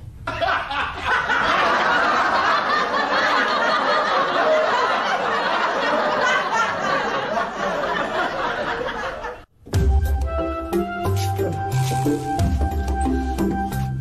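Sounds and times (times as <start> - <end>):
crowd laughing: 0.3 - 9.5.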